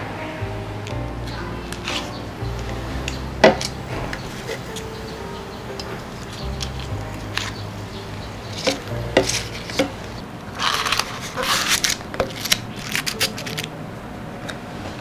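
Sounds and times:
paper liners crinkling: 8.5 - 13.8.

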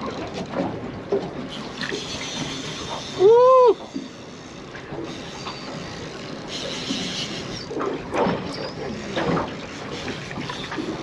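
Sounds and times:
water lapping against boat hull: 0.0 - 11.0
person shouting woo: 3.2 - 3.8.

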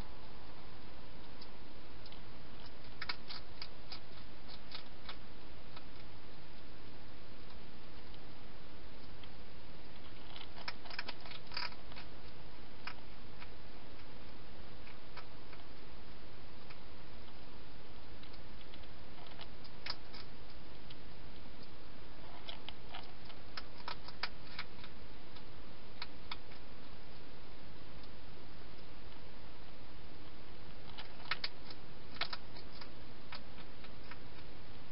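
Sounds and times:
steady hiss: 0.0 - 34.9
hedgehog eating clicks and crunches: 1.2 - 6.7, 9.0 - 15.9, 16.6 - 26.7, 30.7 - 34.9.

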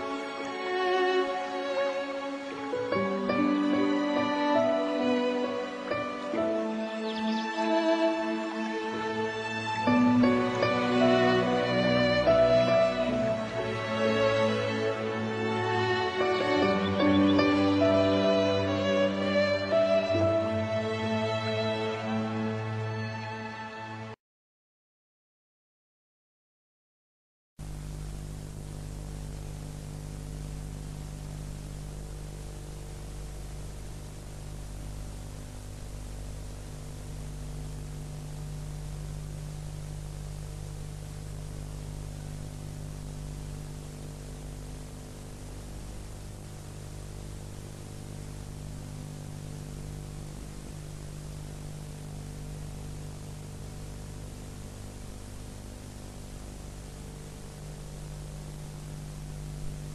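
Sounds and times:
electrical mains hum: 27.6 - 59.9.

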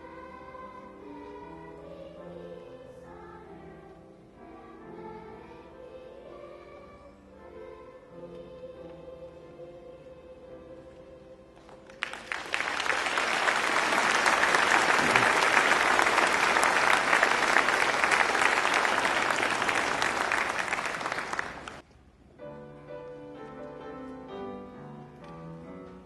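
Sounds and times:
audience applauding: 11.9 - 21.8.

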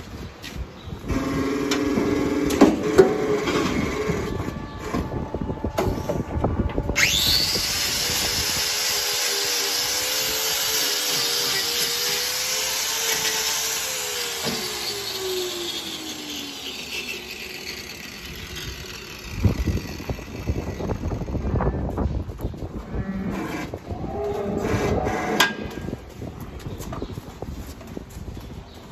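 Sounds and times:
angle grinder whining: 1.1 - 22.0.

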